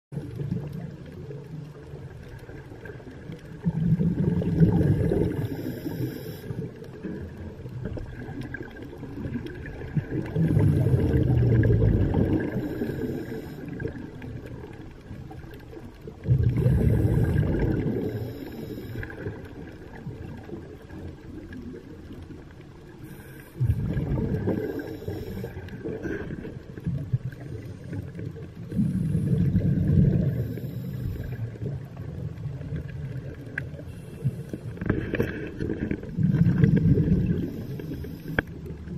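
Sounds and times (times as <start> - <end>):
bubbles surging and gurgling: 0.1 - 38.9
low underwater background: 0.1 - 38.9
diver breathing through regulator: 4.8 - 6.8, 12.3 - 14.0, 16.5 - 19.3, 23.0 - 26.6, 28.7 - 31.6, 33.8 - 38.6.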